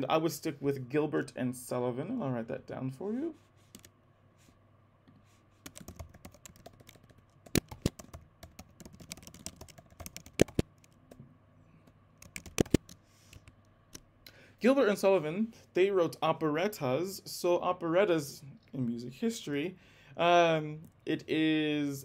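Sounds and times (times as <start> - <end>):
typing on keyboard: 5.7 - 11.0, 12.2 - 13.4.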